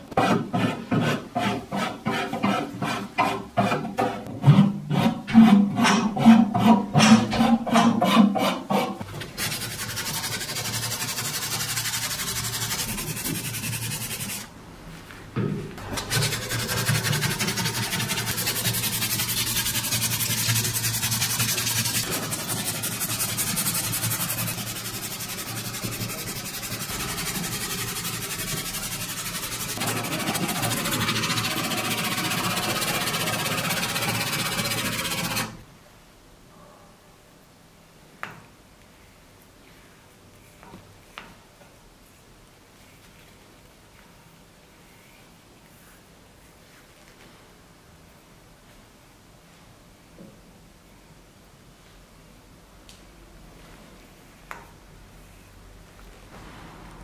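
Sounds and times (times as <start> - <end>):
sandpaper sanding wood: 7.4 - 14.5, 16.0 - 35.6.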